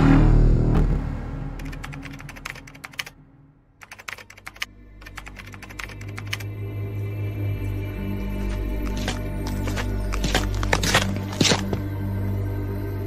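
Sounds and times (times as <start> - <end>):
music: 0.0 - 13.0
rapid keyboard key clicks: 1.6 - 3.1, 3.8 - 6.4, 8.8 - 11.8.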